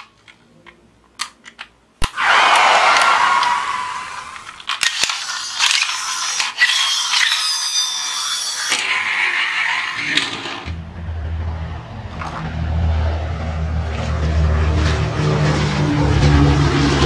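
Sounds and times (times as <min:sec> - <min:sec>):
plastic toy clicks: 0:04.4 - 0:08.9
low engine drone: 0:10.6 - 0:17.0.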